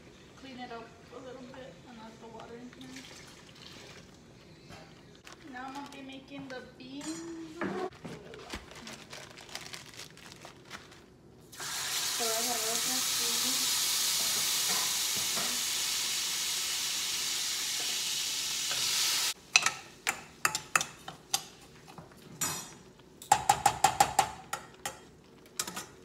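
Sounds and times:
food sizzling in a frying pan: 11.5s - 20.0s.

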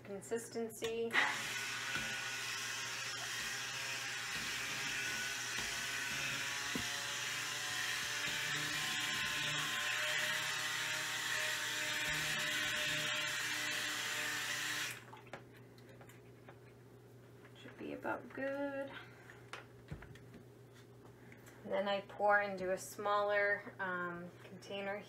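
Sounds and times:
stick blender motor whirring: 1.1s - 15.0s.

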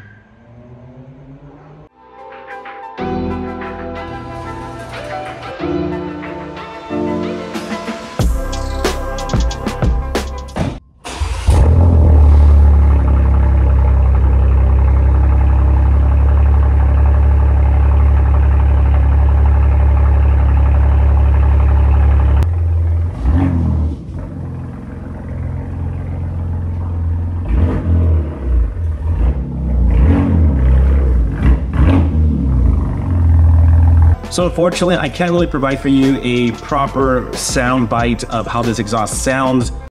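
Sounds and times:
engine throttle blips: 11.0s - 34.3s
car engine idling loudly: 11.5s - 29.8s, 31.2s - 34.2s.

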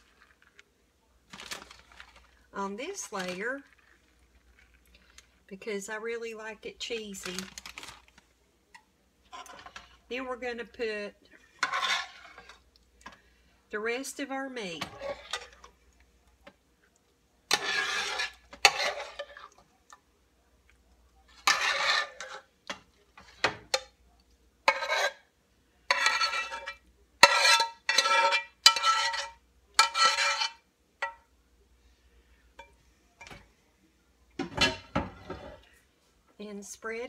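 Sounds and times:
metal spoon scraping a skillet: 9.3s - 10.1s, 11.3s - 12.7s, 14.8s - 15.7s, 17.5s - 19.6s, 21.3s - 23.9s, 24.6s - 25.3s, 25.9s - 31.2s.

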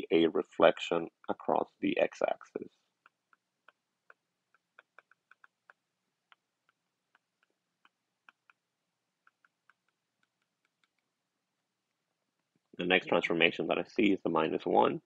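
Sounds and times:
stylus tapping on glass screen: 3.0s - 11.1s.

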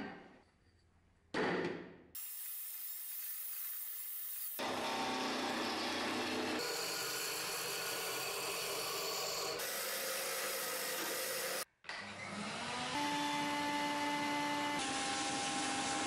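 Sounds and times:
shop vacuum motor whining: 4.6s - 16.0s.

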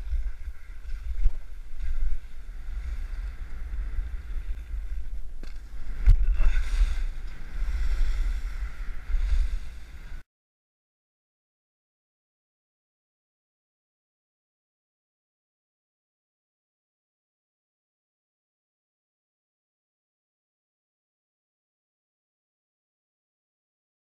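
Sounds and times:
skis sliding on snow: 0.0s - 10.2s
wind buffeting microphone: 0.0s - 10.2s.

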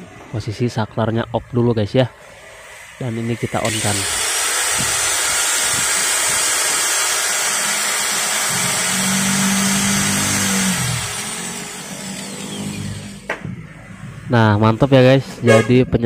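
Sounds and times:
angle grinder whining: 2.2s - 13.4s.

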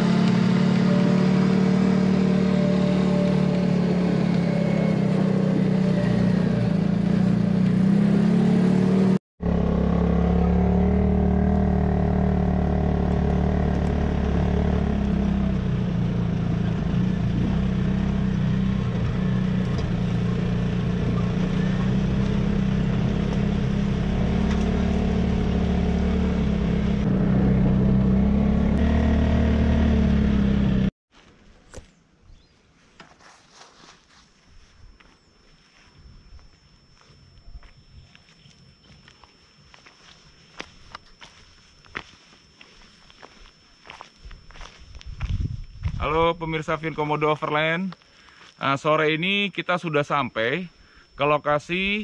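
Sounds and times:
engine droning at low revs: 0.0s - 30.9s.

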